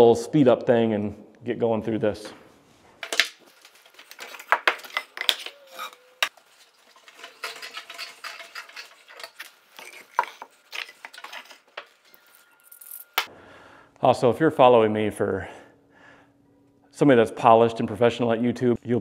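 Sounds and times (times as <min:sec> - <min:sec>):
metal hardware clinking and clattering: 0:03.0 - 0:13.2.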